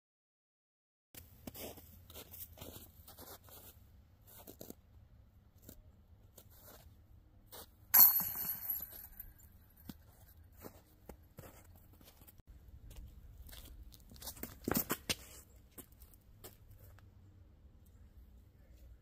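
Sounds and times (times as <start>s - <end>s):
footsteps crunching on snow: 1.2s - 4.8s.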